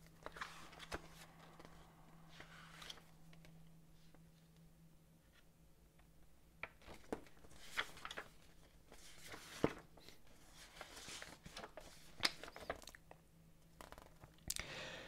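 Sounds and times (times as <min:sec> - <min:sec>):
paper pages rustling: 0:00.2 - 0:04.2, 0:06.7 - 0:12.9.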